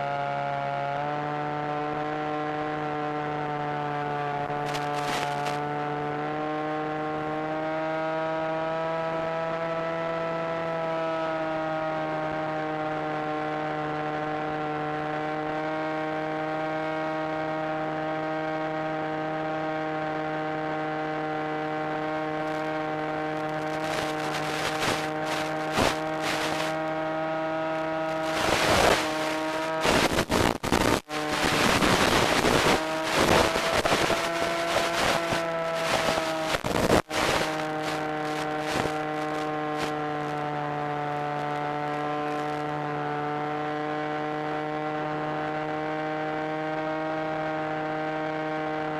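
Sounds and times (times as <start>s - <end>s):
electric motor and propeller whine: 0.0s - 48.9s
crackling static: 4.6s - 5.6s, 22.4s - 22.7s, 23.3s - 26.8s, 28.0s - 40.4s, 42.3s - 42.7s.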